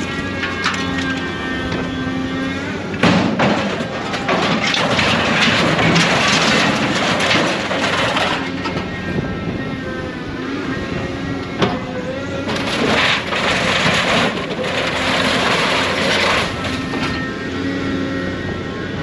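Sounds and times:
scrap metal crashing into trailer: 0.0 - 1.9, 3.0 - 8.9, 12.4 - 17.2
machine engine and hydraulics hum: 0.0 - 19.0.

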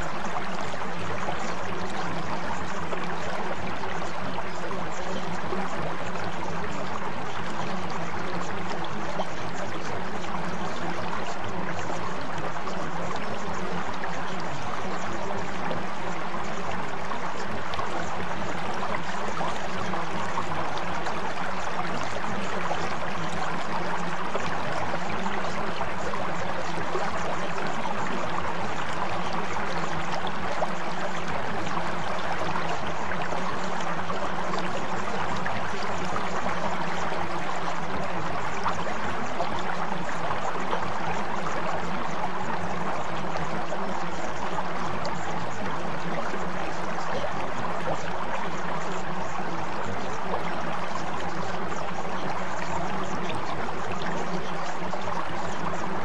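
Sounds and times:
low steady humming tones: 0.0 - 56.0
running water stream: 0.0 - 56.0.

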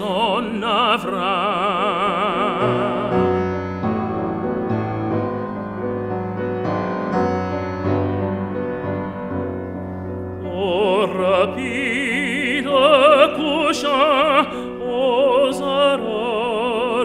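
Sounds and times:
operatic tenor singing with vibrato: 0.0 - 4.8, 10.4 - 17.0
grand piano accompaniment: 0.0 - 17.0.

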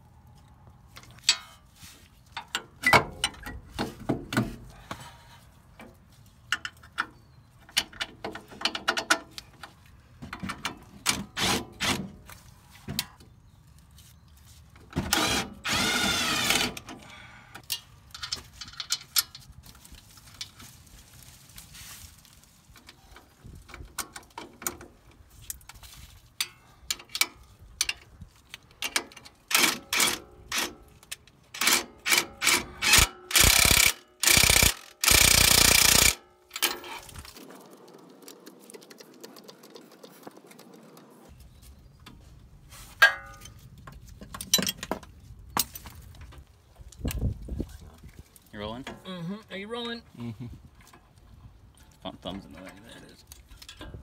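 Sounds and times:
ratchet wrench clicking: 31.6 - 36.2.

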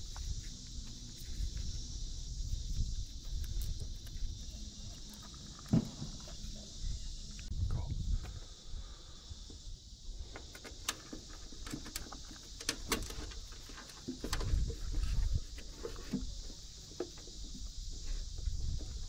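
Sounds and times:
low rumbles on microphone: 6.6 - 8.4
cable clicks and rustles: 10.4 - 16.3.

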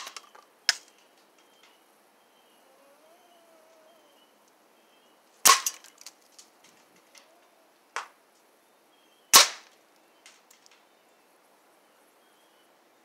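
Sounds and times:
air rifle firing: 5.5 - 5.8, 9.4 - 9.7.

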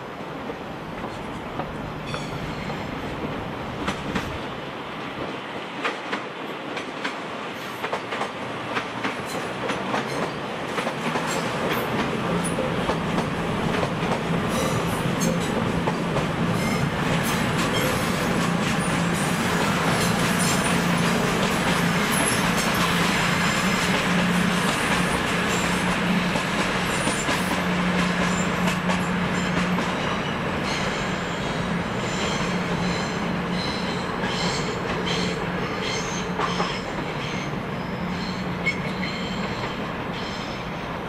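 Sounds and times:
low train hum: 0.0 - 41.0
train wheels clicking over rail joints: 5.2 - 31.2.

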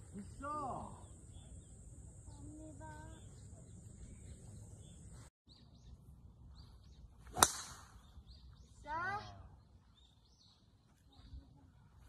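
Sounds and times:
golf club striking ball: 7.3 - 7.9.

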